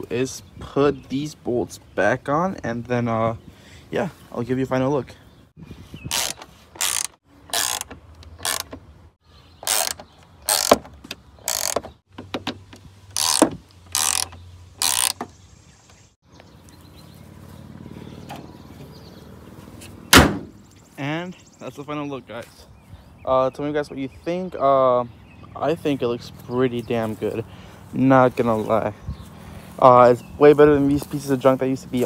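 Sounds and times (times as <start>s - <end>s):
ratchet wrench clicking: 6.1s - 8.7s, 9.6s - 10.7s, 11.4s - 11.8s, 13.1s - 15.2s
car hood slamming shut: 20.1s - 20.6s.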